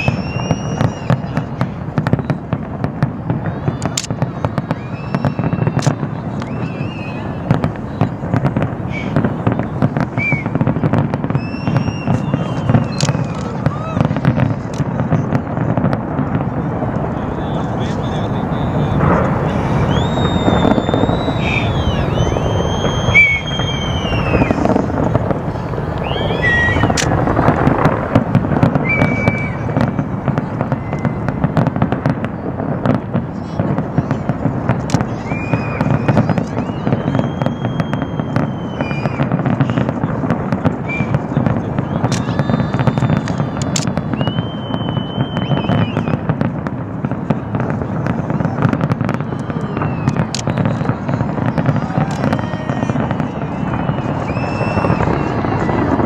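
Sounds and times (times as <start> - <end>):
firework bang: 0.0 - 56.0
firework whistles: 0.0 - 56.0
fireworks crackling and popping: 0.0 - 56.0.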